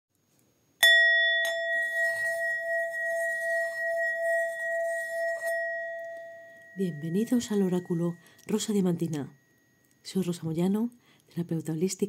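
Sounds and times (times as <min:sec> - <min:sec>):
singing bowl ringing: 0:00.8 - 0:10.4.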